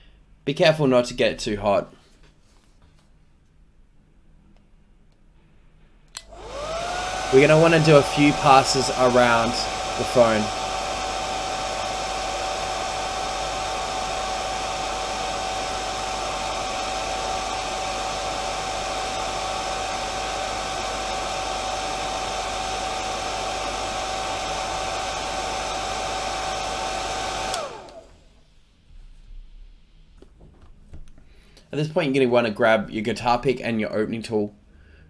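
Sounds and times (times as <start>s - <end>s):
heat gun blowing: 6.2s - 28.3s.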